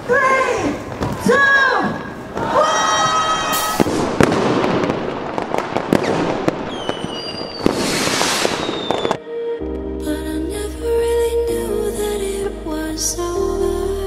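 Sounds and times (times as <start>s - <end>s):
fireworks bangs and crackles: 0.0s - 9.2s
fireworks whistle: 2.6s - 4.9s, 5.8s - 9.2s.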